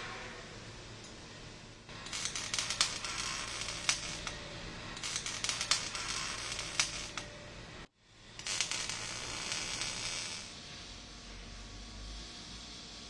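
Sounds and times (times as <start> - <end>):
welding arc crackling: 1.8 - 7.3, 8.4 - 10.6.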